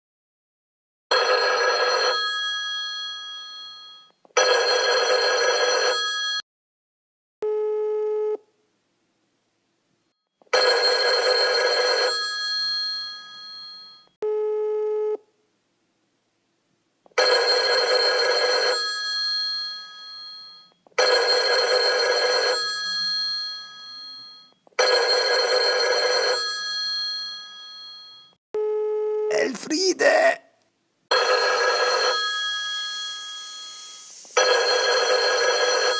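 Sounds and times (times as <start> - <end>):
telephone bell ringing: 1.1 - 6.4, 10.5 - 14.2, 17.2 - 28.4, 31.1 - 35.9
telephone ring-back tone: 1.1 - 6.4, 10.5 - 15.2, 17.2 - 29.2, 31.1 - 35.9.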